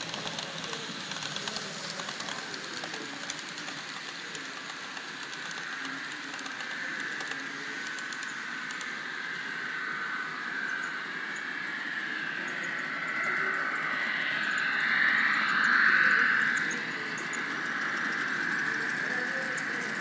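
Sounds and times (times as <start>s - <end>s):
model train wheels clicking: 0.0s - 9.4s, 14.4s - 20.0s.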